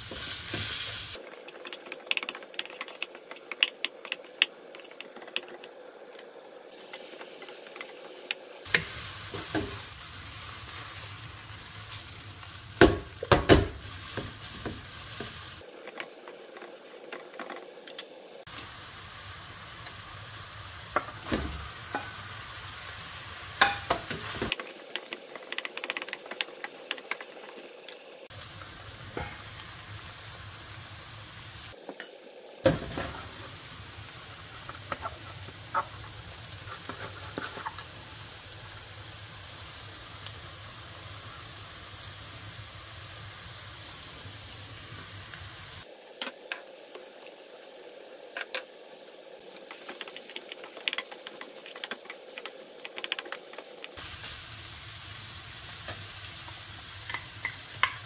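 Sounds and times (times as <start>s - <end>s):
meat sizzling in a frying pan: 0.0s - 58.0s
water boiling in a pot: 0.0s - 58.0s
wooden spoon scraping a pan: 34.6s - 37.9s.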